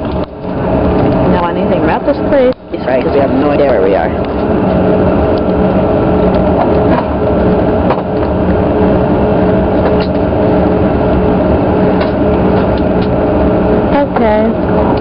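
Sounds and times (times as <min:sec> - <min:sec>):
constant hums: 0:00.0 - 0:15.0
jet engines low rumble: 0:00.0 - 0:15.0.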